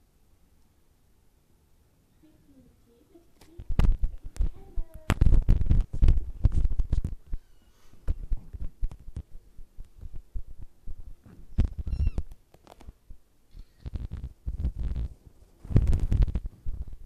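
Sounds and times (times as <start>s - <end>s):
phone microphone handling noise: 3.4s - 7.4s, 13.8s - 17.0s.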